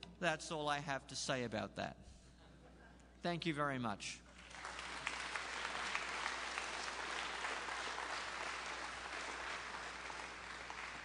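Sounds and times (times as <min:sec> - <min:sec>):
small audience applauding: 0:04.4 - 0:11.0.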